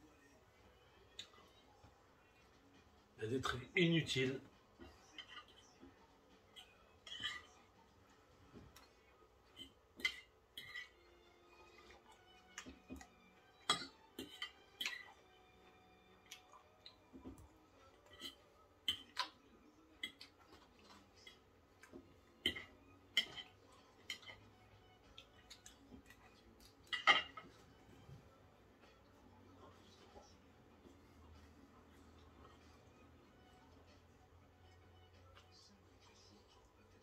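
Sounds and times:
knife and fork clinking on a plate: 22.4 - 24.5, 26.9 - 27.5.

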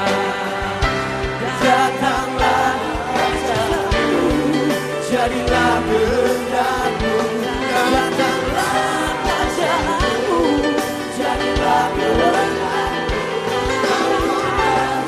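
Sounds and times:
person singing: 0.0 - 15.0
steady drum beat: 0.0 - 15.0
worship band playing pop song: 0.0 - 15.0.

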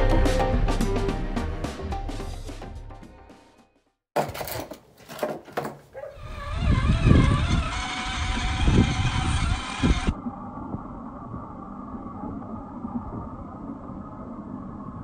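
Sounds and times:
electric motor whine: 6.2 - 10.2.

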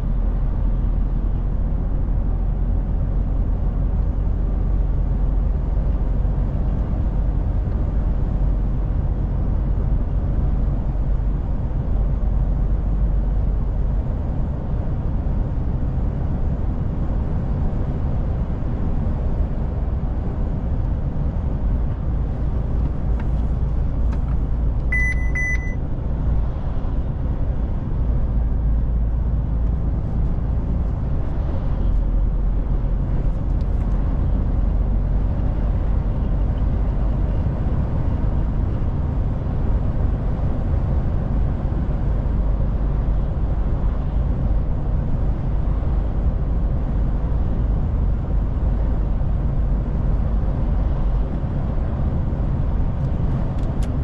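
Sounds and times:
road noise: 0.0 - 54.0
truck diesel engine droning: 18.4 - 52.9
high-pitched electronic beeps: 24.9 - 25.8.

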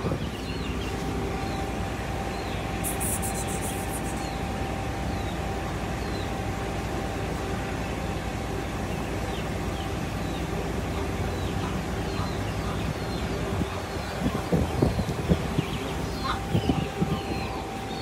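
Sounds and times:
mid-pitched hum: 0.0 - 18.0
brief high hiss: 2.8 - 4.3
short high chirp: 2.8 - 4.4.

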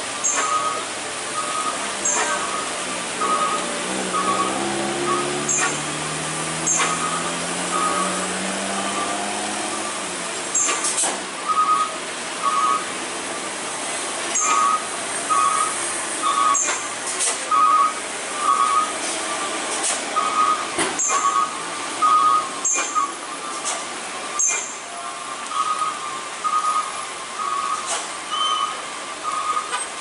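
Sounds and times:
truck engine revving: 0.0 - 24.8
rain hissing on road: 0.0 - 30.0.

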